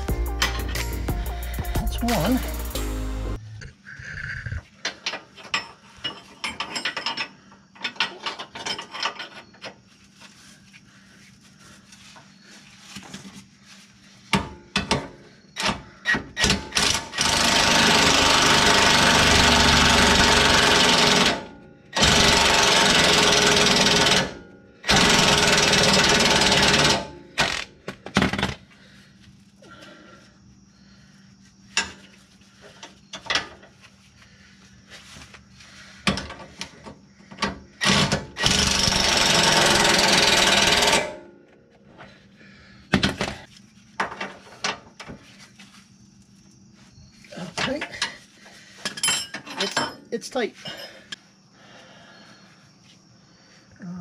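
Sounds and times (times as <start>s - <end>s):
hand tools clanking on metal: 4.8s - 9.6s, 47.4s - 51.1s
impact wrench hammering: 37.8s - 41.2s.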